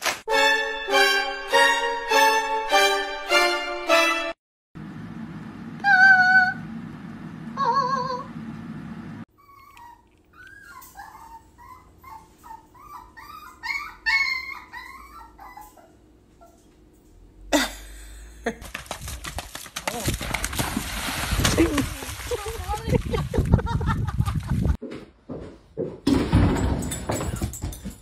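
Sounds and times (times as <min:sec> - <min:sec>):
small dog whining and yipping: 0:09.3 - 0:16.6.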